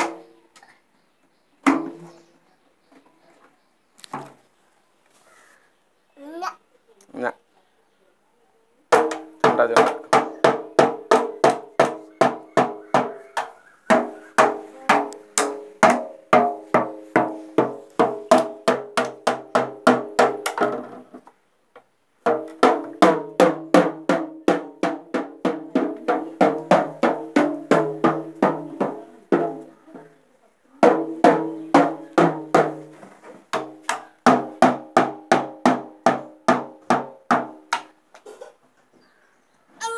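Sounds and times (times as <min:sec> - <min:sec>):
steady pitched drumming: 0:08.9 - 0:20.7, 0:22.2 - 0:29.7.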